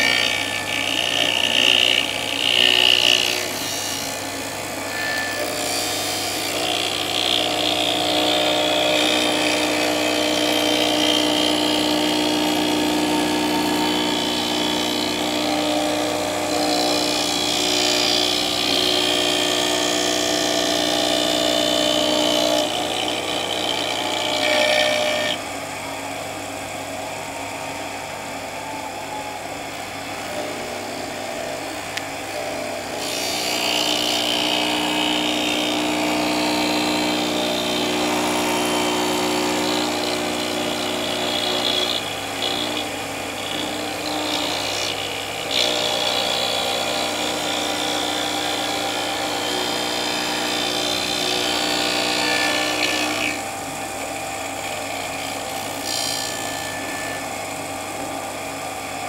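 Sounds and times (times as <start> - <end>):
end mill cutting metal: 0.0 - 59.0
milling machine motor hum: 0.0 - 59.0.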